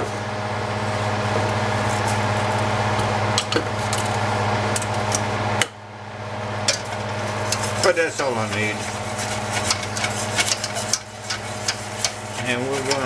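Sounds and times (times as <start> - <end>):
low steady hum: 0.0 - 13.0
whisk clicking against pan: 6.7 - 13.0
whisk scraping through paste: 7.2 - 13.0.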